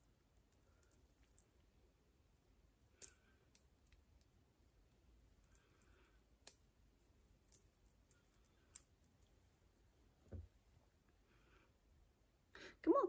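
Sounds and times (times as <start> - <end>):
jewellery clicking: 2.9 - 4.3.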